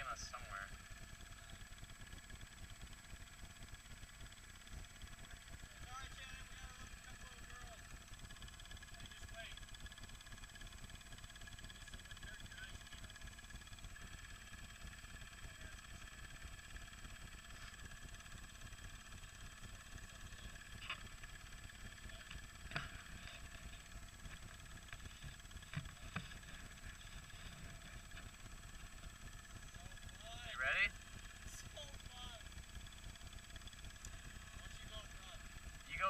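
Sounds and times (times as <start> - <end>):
faint engines rumbling: 0.0 - 36.0.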